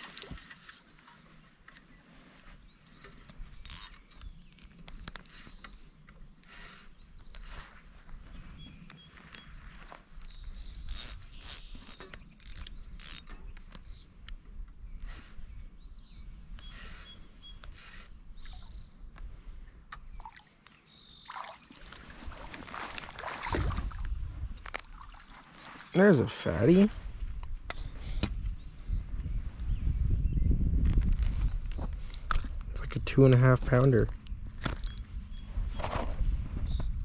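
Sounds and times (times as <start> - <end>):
fishing reel clicking and whirring: 3.6 - 5.5, 10.2 - 13.3.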